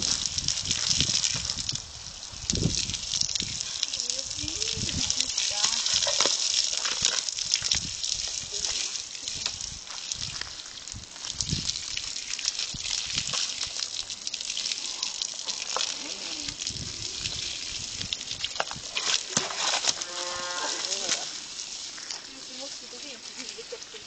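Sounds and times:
garden hose spraying water: 0:00.0 - 0:24.0.

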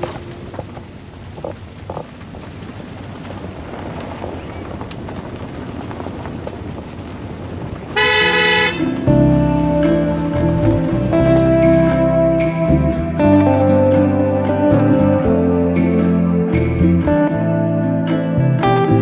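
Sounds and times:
vehicle horn blast: 0:08.0 - 0:10.2.

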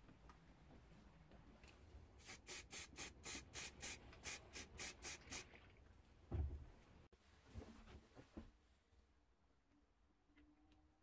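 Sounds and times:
spray paint can hissing: 0:02.2 - 0:05.5
dull thump: 0:06.3 - 0:06.6.

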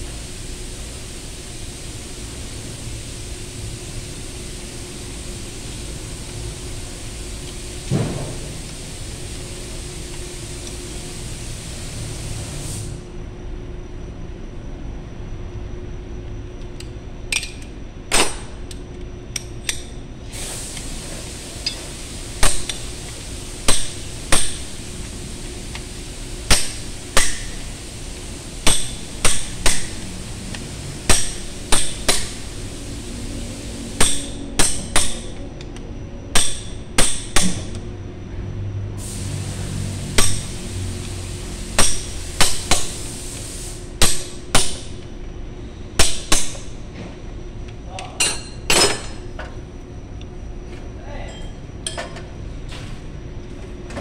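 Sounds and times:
hammer striking steel bar: 0:23.7 - 0:24.6, 0:26.5 - 0:27.6, 0:28.6 - 0:30.0, 0:31.1 - 0:32.4, 0:34.0 - 0:35.4, 0:36.3 - 0:37.8, 0:40.2 - 0:40.6, 0:41.8 - 0:42.9, 0:44.0 - 0:44.9, 0:46.0 - 0:46.6.

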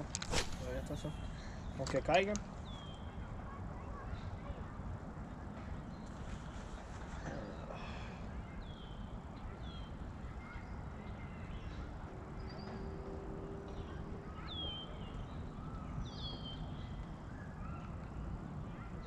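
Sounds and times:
birds calling: 0:00.0 - 0:03.3.

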